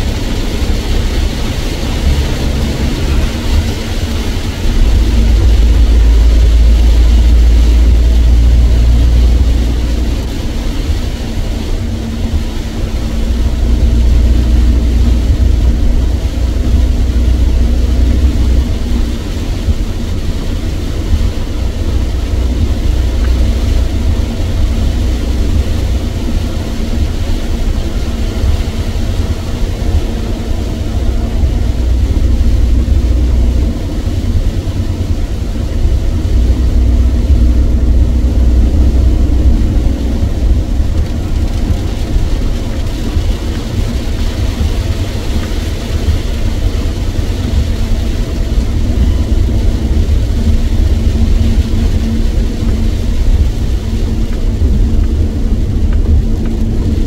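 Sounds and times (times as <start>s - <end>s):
car road and engine rumble: 0.0s - 57.0s
wet tyres and rain hiss: 0.0s - 57.0s.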